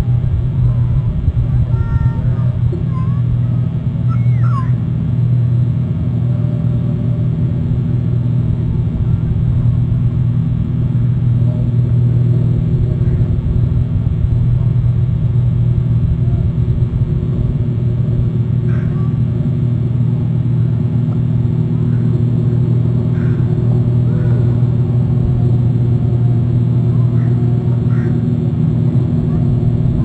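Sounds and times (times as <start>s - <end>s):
boat engine droning: 0.0s - 30.0s.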